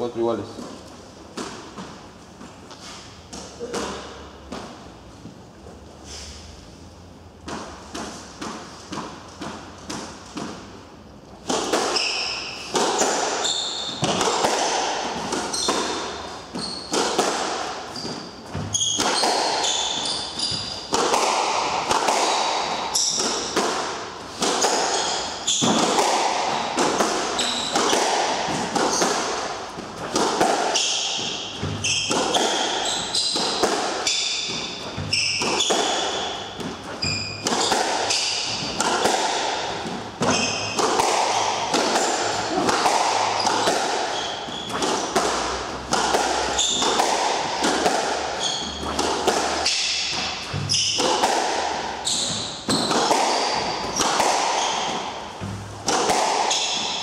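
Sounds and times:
squash ball hitting rackets and walls: 0.0 - 57.0
shoes squeaking on wooden floor: 11.9 - 14.4, 15.1 - 23.6, 24.3 - 38.9, 39.7 - 55.8.

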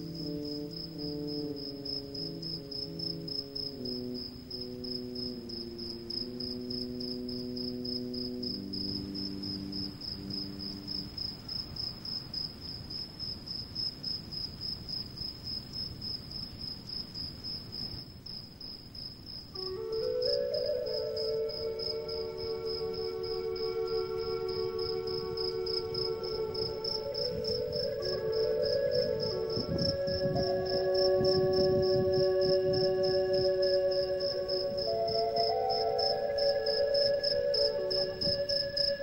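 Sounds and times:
slow low musical notes: 0.0 - 11.2, 19.6 - 39.0
cricket chirping: 0.0 - 39.0.

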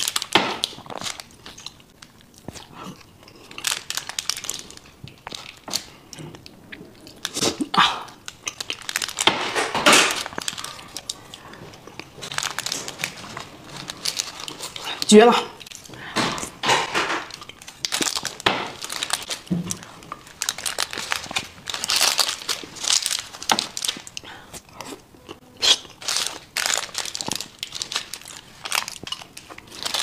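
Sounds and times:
person chewing: 0.0 - 9.3, 10.2 - 16.6, 17.2 - 30.0.

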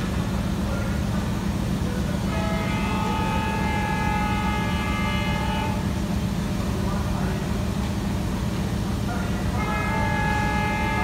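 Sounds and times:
locomotive horn blast: 2.2 - 6.0, 9.5 - 11.0.

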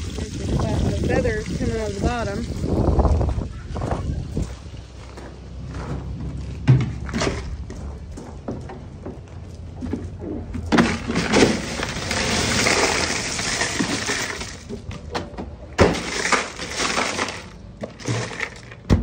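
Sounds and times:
ice shifting: 0.0 - 3.2, 10.8 - 14.9, 15.8 - 18.9
ice cubes pouring rattling: 10.9 - 14.7, 16.0 - 18.8.

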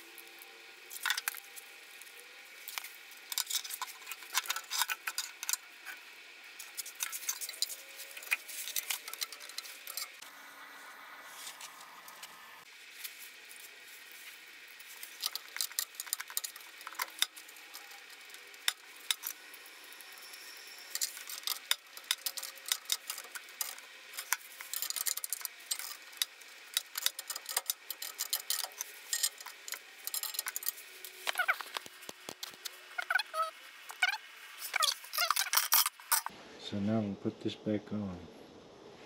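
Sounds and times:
small metal parts clinking: 0.9 - 6.0, 6.6 - 10.2, 14.8 - 36.3.

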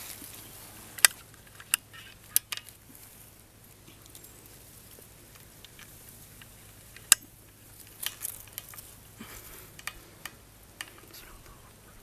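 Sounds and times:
faint clicks and rustles: 0.0 - 12.0
sharp crack: 5.3 - 11.6.

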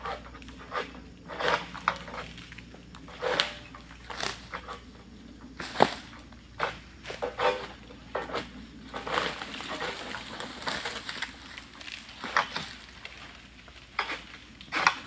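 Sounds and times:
sickle rasping strokes: 0.0 - 2.4, 3.0 - 4.9, 5.6 - 11.6
palm fronds rustling: 0.0 - 15.0.

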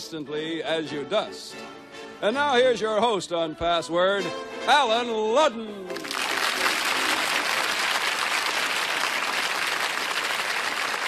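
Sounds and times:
studio audience applauding: 5.9 - 11.0.

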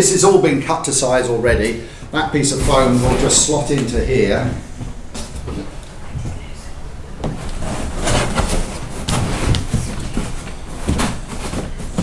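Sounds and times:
foam scraping against cardboard: 7.5 - 12.0.

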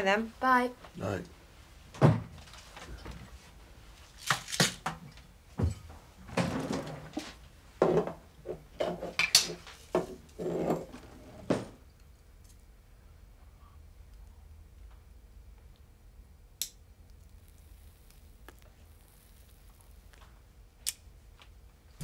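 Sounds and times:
crockery and cutlery clattering: 8.8 - 11.6.

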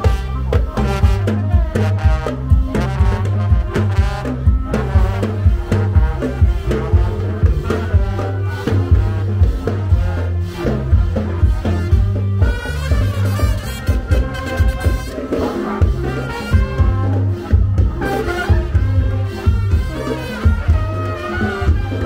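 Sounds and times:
brass band playing: 0.0 - 22.0
steady drum beat: 0.0 - 22.0.

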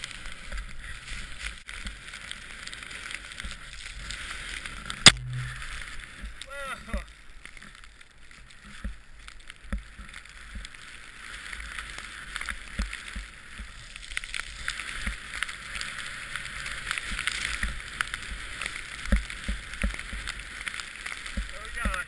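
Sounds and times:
snowboard sliding through snow: 0.0 - 22.0
low thumps: 5.0 - 6.4.

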